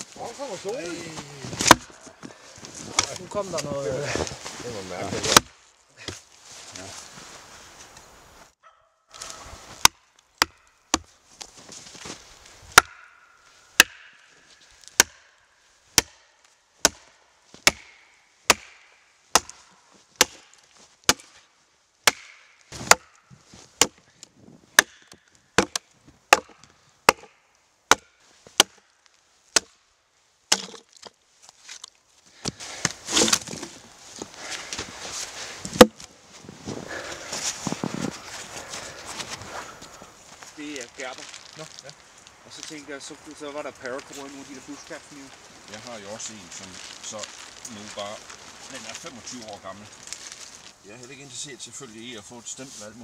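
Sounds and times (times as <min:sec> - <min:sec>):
axe hammering wooden wedges: 0:01.6 - 0:02.0, 0:05.3 - 0:06.2, 0:09.8 - 0:11.1, 0:12.7 - 0:13.2, 0:13.8 - 0:14.3, 0:14.9 - 0:15.3, 0:15.9 - 0:19.6, 0:20.2 - 0:21.4, 0:22.0 - 0:23.2, 0:23.8 - 0:24.0, 0:24.8 - 0:28.9, 0:29.5 - 0:29.8, 0:30.5 - 0:31.1
wood cracking and splintering: 0:30.5 - 0:33.9.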